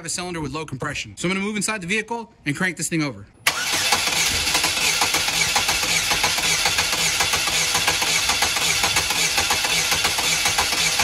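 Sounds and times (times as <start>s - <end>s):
engine cranking without firing: 3.5s - 11.0s.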